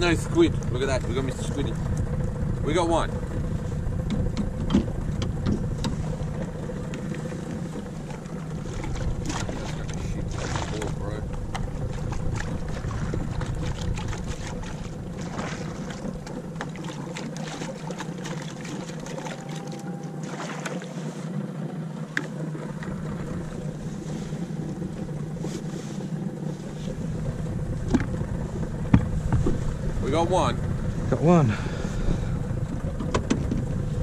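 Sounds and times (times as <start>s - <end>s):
steady low hum: 0.0s - 34.0s
seawater splashing and pouring: 6.0s - 30.2s.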